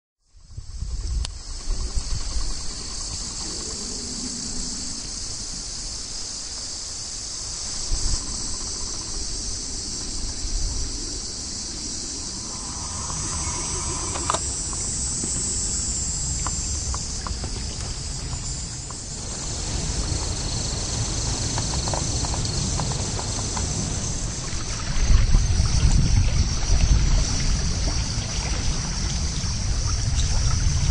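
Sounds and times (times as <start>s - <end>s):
high-pitched insect chorus: 0.2s - 30.9s
low rumble: 11.6s - 15.6s.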